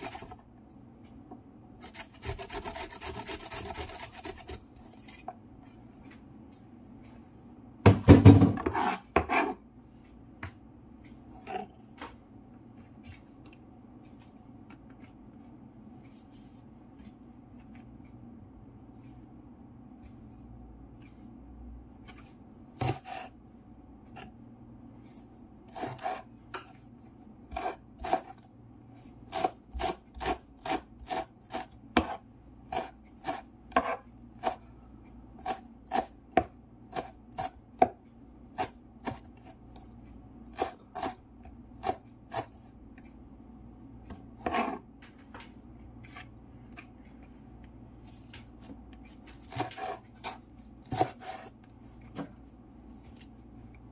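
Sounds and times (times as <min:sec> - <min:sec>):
knife chopping on wooden board: 0:22.8 - 0:23.2, 0:25.7 - 0:26.2, 0:29.3 - 0:34.6, 0:35.4 - 0:39.3, 0:40.5 - 0:41.2, 0:44.1 - 0:44.8, 0:49.3 - 0:51.5.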